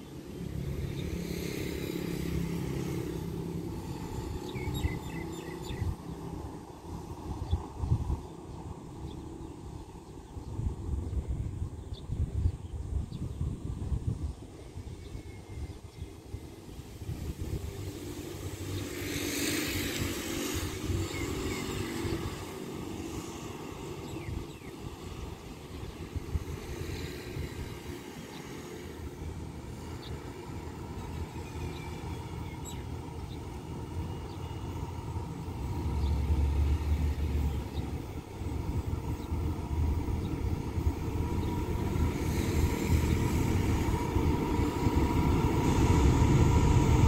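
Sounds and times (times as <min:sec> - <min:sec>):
diesel train engine rumble: 0:00.0 - 0:47.0
rush of hiss: 0:00.6 - 0:07.5, 0:16.5 - 0:32.8, 0:39.5 - 0:47.0
locomotive engine running: 0:33.3 - 0:47.0.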